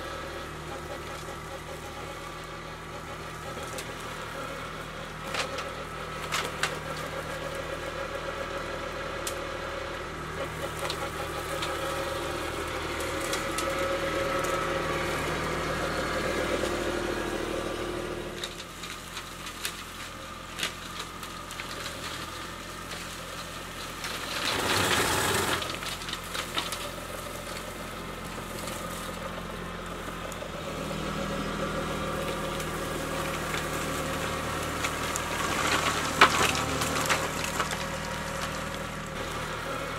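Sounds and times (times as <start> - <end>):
tractor diesel engine running: 0.0 - 39.9
flail mower chopping brush: 10.3 - 39.9.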